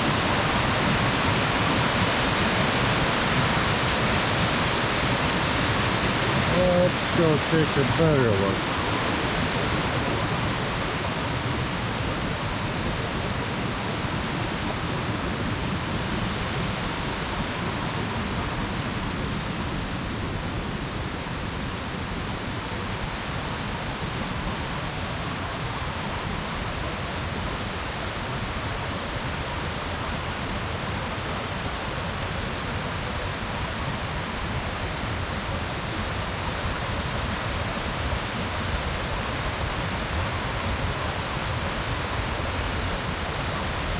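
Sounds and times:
waterfall and rapids rushing: 0.0 - 43.9.

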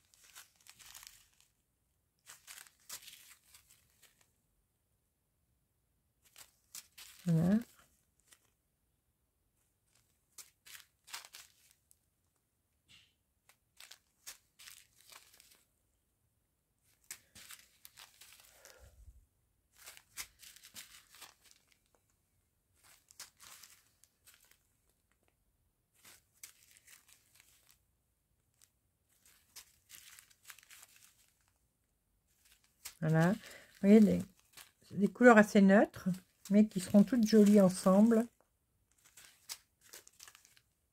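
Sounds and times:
plastic bags crinkling: 0.0 - 1.5, 2.2 - 4.2, 6.2 - 8.5, 9.9 - 12.0, 13.7 - 15.7, 16.8 - 19.1, 19.7 - 22.0, 22.8 - 25.3, 25.9 - 27.8, 28.5 - 31.6, 32.3 - 40.8.

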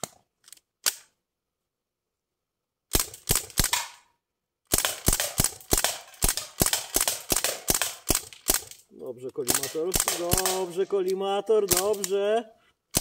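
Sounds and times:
bb gun shots: 2.9 - 4.1, 4.7 - 8.8, 9.4 - 10.8, 11.6 - 12.2.

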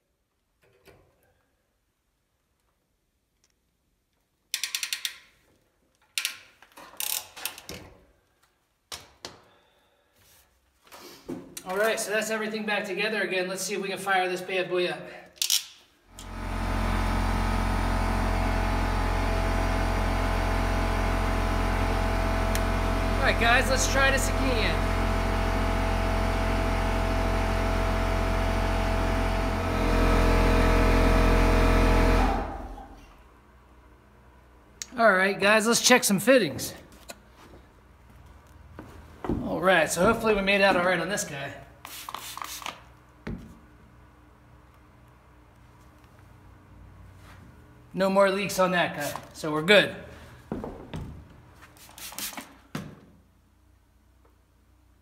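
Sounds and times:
ratchet clicks: 4.5 - 5.4, 6.1 - 7.7
electric water pump running: 16.1 - 33.0
tool knocks and rattles: 50.5 - 51.4.

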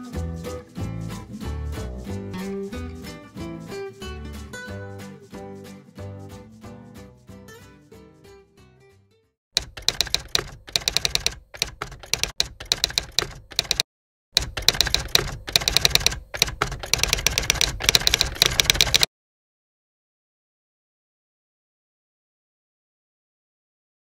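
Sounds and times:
faint guitar music: 0.0 - 9.2
manual typewriter key clacks: 9.6 - 13.8, 14.4 - 19.1.

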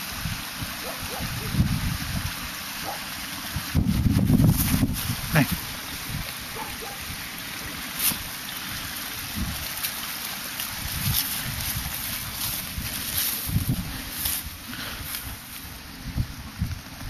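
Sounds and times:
wind buffeting microphone: 0.1 - 2.6, 3.5 - 7.4, 8.2 - 9.8, 10.7 - 17.0
dry leaves and twigs crackling: 4.2 - 7.0, 7.6 - 15.9.

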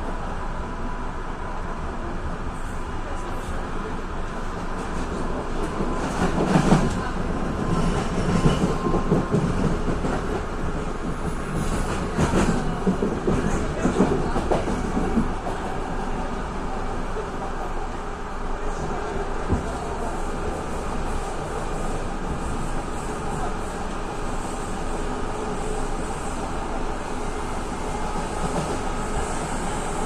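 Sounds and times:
train wheels rumbling on track: 0.0 - 30.0.

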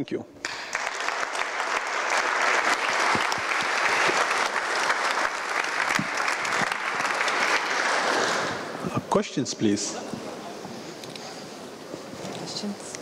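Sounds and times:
audience applauding: 0.4 - 8.9.

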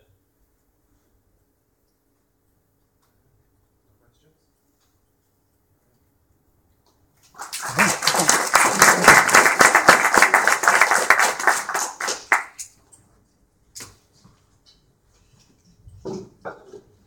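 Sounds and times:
audience applauding: 7.2 - 12.6.

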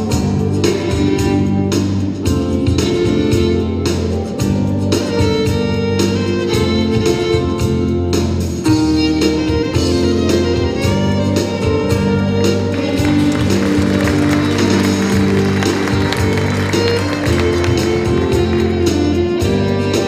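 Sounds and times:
steady drum beat: 0.0 - 20.0
fiddle melody: 4.9 - 8.2, 8.8 - 20.0
sustained band chords: 8.8 - 20.0.

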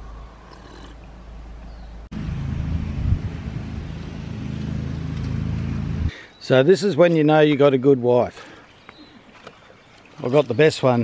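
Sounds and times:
low steady hum: 0.0 - 6.1
wind buffeting microphone: 2.6 - 4.7.

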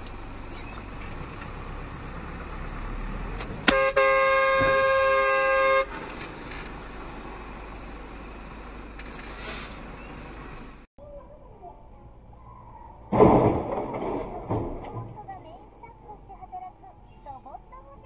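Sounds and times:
road and engine noise: 0.0 - 18.0
vehicle horn blaring: 3.7 - 6.0
sharp bang: 13.1 - 15.1.

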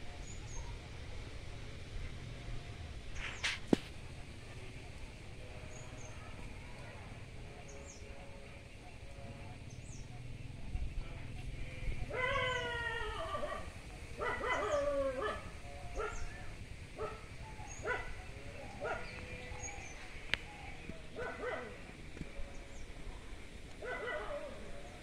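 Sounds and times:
whining animal calls: 12.0 - 22.0.

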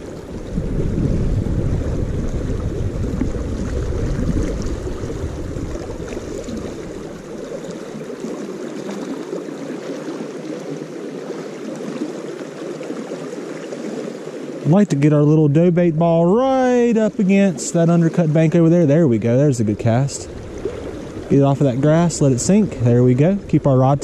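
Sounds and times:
wind rumble on microphone: 0.0 - 7.8, 19.4 - 24.0
rushing creek water: 0.0 - 24.0.

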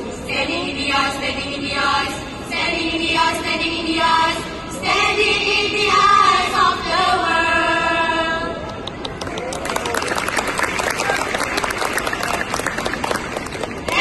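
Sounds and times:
girls singing in chorus: 0.1 - 8.6.

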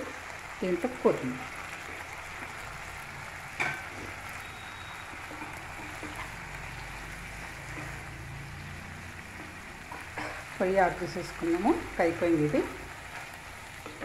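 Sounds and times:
food sizzling in oil: 0.0 - 14.0
wooden spatula stirring: 3.9 - 6.6, 7.2 - 10.4.

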